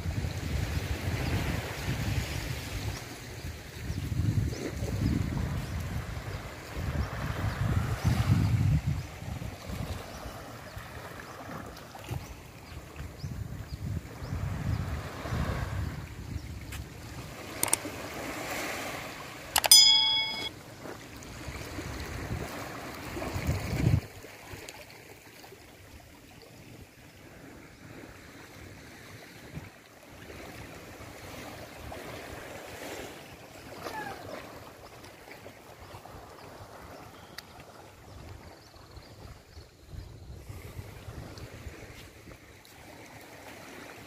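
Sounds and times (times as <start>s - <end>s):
wind buffeting microphone: 0.0s - 10.8s, 13.0s - 17.8s, 21.6s - 24.2s, 38.1s - 42.5s
waves lapping on sand: 0.0s - 44.0s
click and ringing chime: 19.6s - 20.5s.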